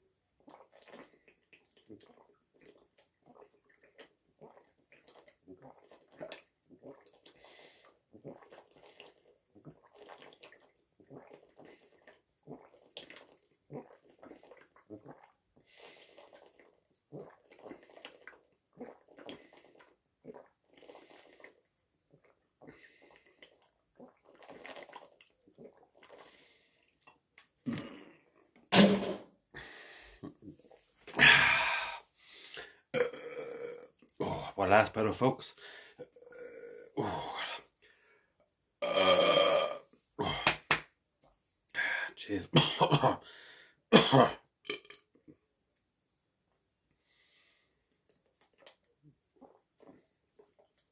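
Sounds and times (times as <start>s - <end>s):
person swallowing water: 0.4s - 7.4s, 8.2s - 15.4s, 16.2s - 26.3s, 26.9s - 29.3s, 30.2s - 34.6s, 36.0s - 37.8s, 38.8s - 40.8s, 44.0s - 45.1s, 47.9s - 50.9s
mouth and breath sounds: 29.5s - 32.9s.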